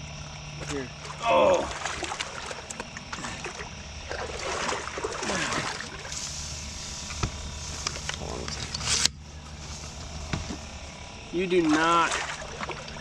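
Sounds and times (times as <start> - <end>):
water splashing and trickling: 0.6 - 8.7, 9.4 - 13.0
handling clicks and rustles: 7.0 - 10.8.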